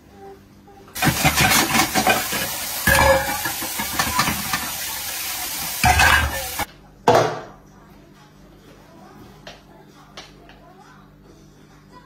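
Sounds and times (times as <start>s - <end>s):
brush scrubbing a pot: 1.0s - 6.7s
tap water running into sink: 1.0s - 6.7s.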